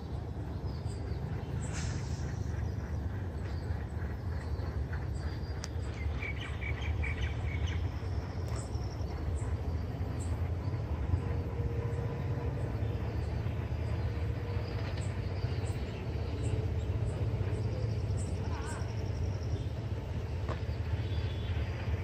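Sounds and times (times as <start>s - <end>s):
birds chirping: 0.0s - 22.0s
diesel locomotive rumbling: 0.0s - 22.0s.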